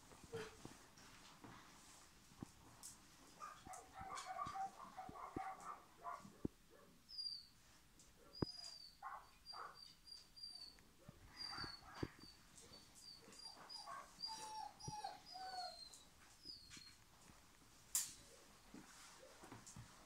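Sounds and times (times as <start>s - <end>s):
dog whimpering: 9.6s - 17.0s.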